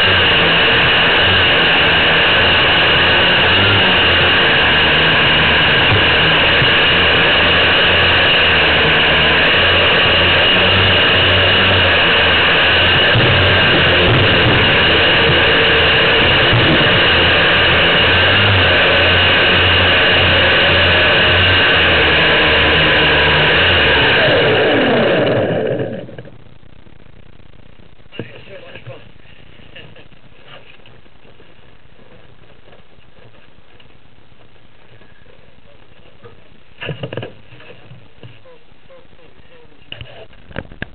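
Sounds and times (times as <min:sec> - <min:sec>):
model plane motors whining: 0:00.0 - 0:26.2
low rumble over snow: 0:00.0 - 0:40.9.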